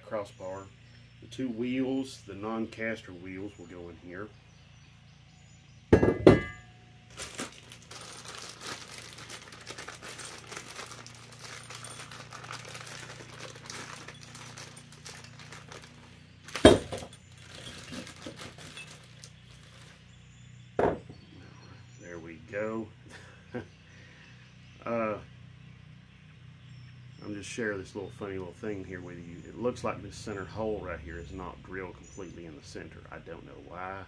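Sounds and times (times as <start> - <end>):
loud metal knock: 5.9 - 6.7
metal parts clanking: 5.9 - 6.7, 9.9 - 19.3.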